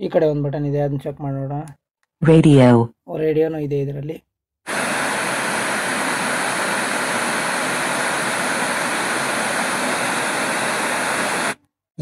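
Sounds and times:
radio static hiss: 0:04.7 - 0:11.6.

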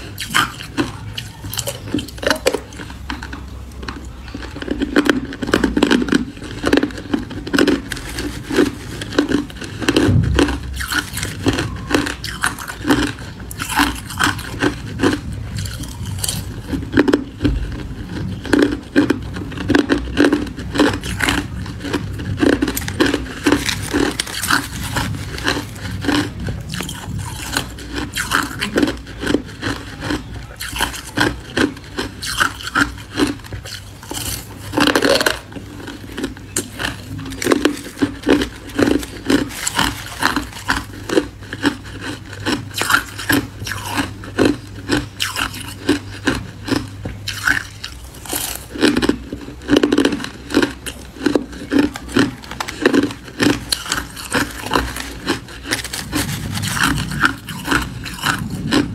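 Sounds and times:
ice being chewed: 0:00.0 - 0:58.9
metal spoon scraping ice: 0:22.5 - 0:33.3, 0:36.1 - 0:42.2, 0:51.6 - 0:58.4.

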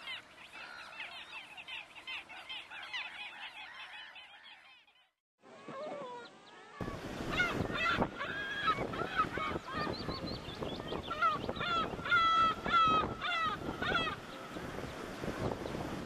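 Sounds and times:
birds honking calls: 0:06.1 - 0:16.0
surf rushing: 0:06.8 - 0:16.0.

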